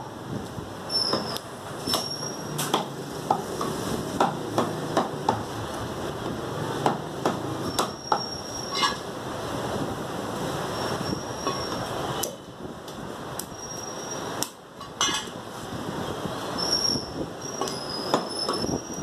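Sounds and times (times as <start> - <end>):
cleaver chopping meat on wood: 1.9 - 5.5, 6.8 - 8.3.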